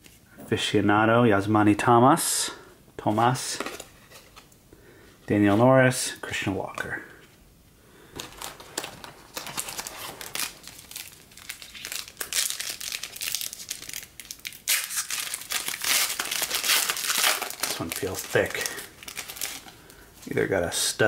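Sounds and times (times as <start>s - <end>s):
foil wrapper crinkling: 8.2s - 20.0s.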